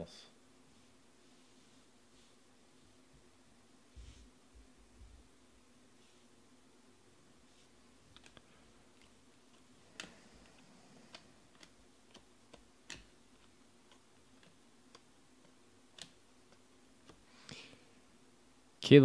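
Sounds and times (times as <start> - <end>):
low steady hum: 0.0 - 19.0
cards being flicked through: 8.1 - 17.3.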